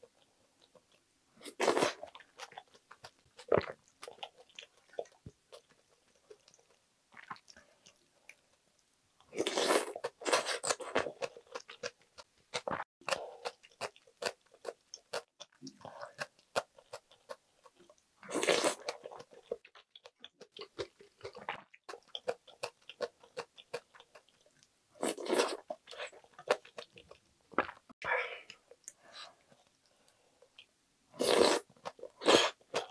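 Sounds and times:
slurping noodles: 0:31.2 - 0:32.6.

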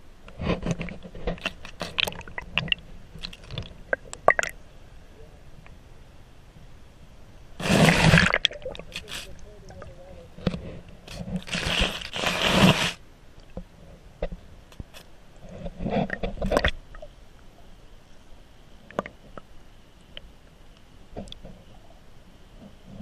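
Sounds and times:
underwater scraping and rushing: 0:07.6 - 0:13.0, 0:15.4 - 0:17.0.

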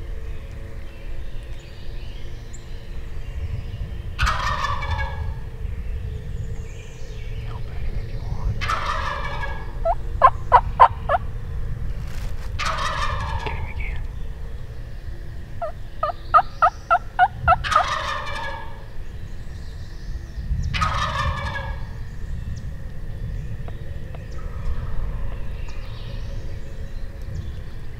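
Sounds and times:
turkey gobbling: 0:04.2 - 0:05.4, 0:08.6 - 0:11.3, 0:12.6 - 0:14.0, 0:15.6 - 0:18.9, 0:20.8 - 0:21.9.

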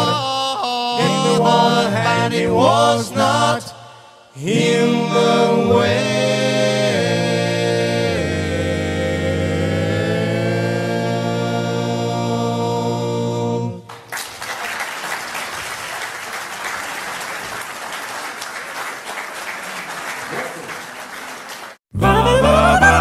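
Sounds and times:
male a cappella group singing: 0:00.0 - 0:13.9
audience applauding: 0:13.9 - 0:21.8.

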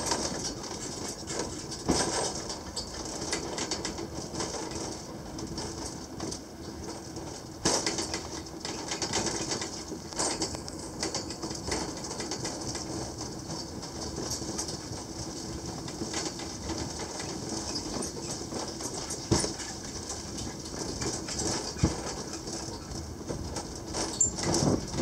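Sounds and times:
funicular car shaking and creaking: 0:00.0 - 0:25.0.

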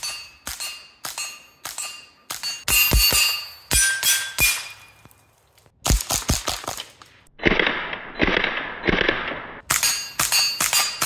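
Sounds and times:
steel plate ringing: 0:00.0 - 0:05.0, 0:09.7 - 0:11.0.

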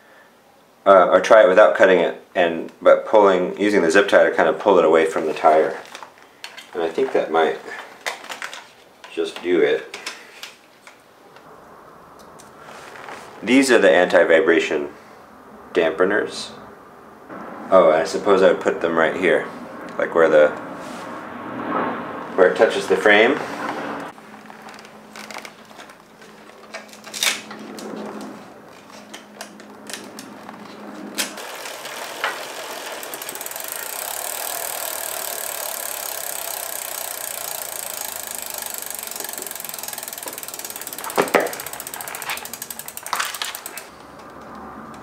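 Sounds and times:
freehub ticking: 0:28.7 - 0:45.0.

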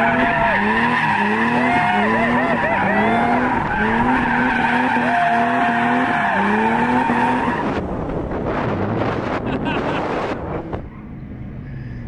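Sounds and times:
tyres squealing: 0:00.0 - 0:07.6
car engine revving: 0:00.0 - 0:12.0
rushing rumble: 0:07.1 - 0:10.9.

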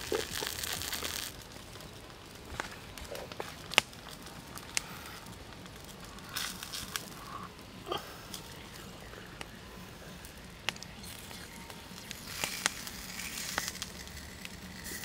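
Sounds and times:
wood fire crackling: 0:00.0 - 0:15.0
liquid hissing in a pan: 0:09.7 - 0:15.0.

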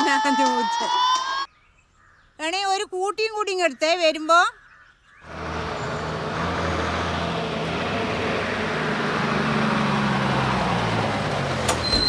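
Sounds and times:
road noise: 0:05.2 - 0:12.0
bus diesel engine running: 0:05.3 - 0:12.0.

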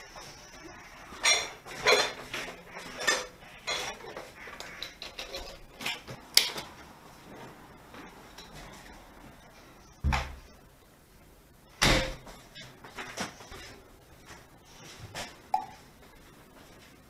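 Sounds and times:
dishes and cutlery clattering: 0:01.2 - 0:04.2.

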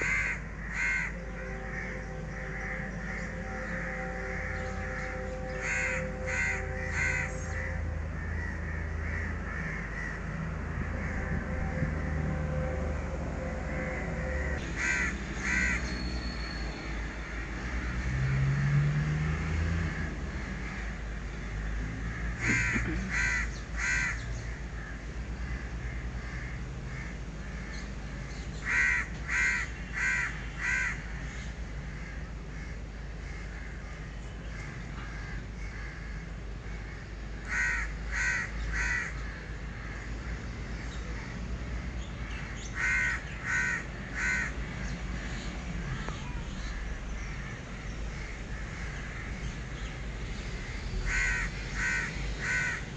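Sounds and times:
steady low rumble: 0:00.0 - 0:14.8
crows cawing: 0:00.0 - 0:15.9, 0:19.4 - 0:52.9.

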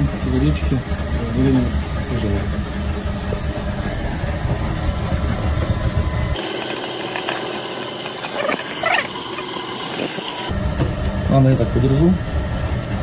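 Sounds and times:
low steady rumble: 0:00.1 - 0:06.4.

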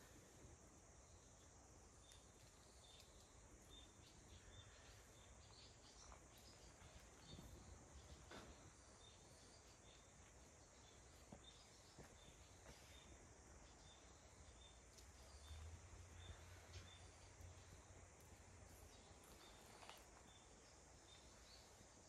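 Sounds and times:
faint outdoor ambience: 0:00.0 - 0:22.0
faint ticks: 0:01.2 - 0:07.4.

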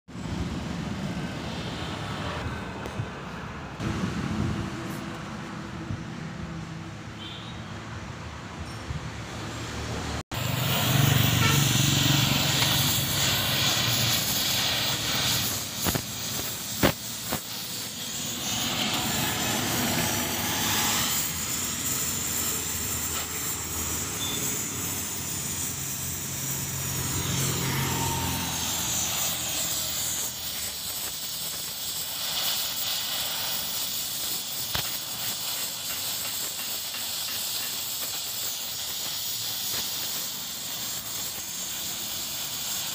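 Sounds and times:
welding torch flame hissing: 0:09.3 - 0:42.9.

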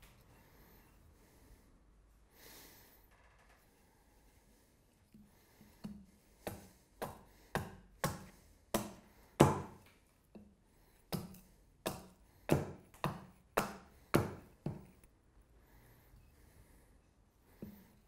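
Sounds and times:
hatchet chopping wood: 0:05.8 - 0:09.9, 0:11.1 - 0:15.0.

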